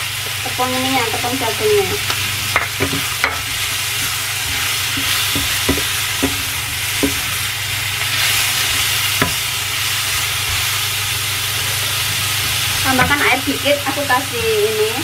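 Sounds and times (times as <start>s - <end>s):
food sizzling in a frying pan: 0.0s - 15.0s
spatula scraping a pan: 2.5s - 10.8s.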